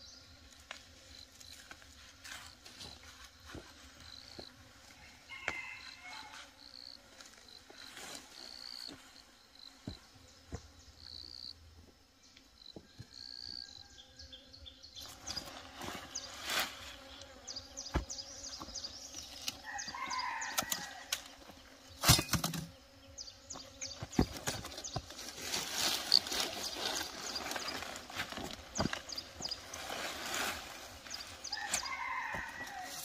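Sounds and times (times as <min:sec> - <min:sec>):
insect chirps: 0:00.0 - 0:33.0
rustle: 0:15.0 - 0:22.6, 0:24.1 - 0:33.0.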